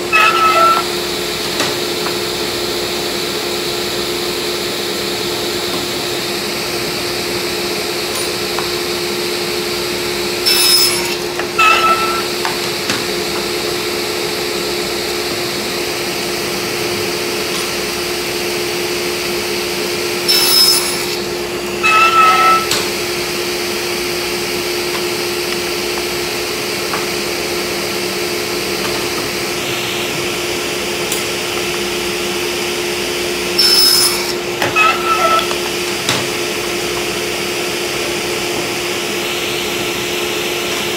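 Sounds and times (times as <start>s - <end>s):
table saw blade cutting wood: 0.0s - 2.6s, 5.2s - 40.9s
table saw humming: 0.0s - 40.9s.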